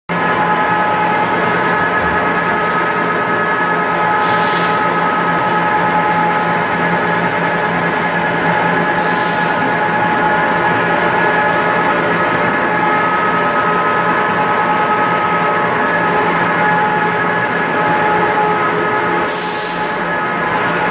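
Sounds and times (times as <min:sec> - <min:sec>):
pellet mill machine hum: 0:00.1 - 0:20.9
steady high machine tones: 0:00.1 - 0:20.9.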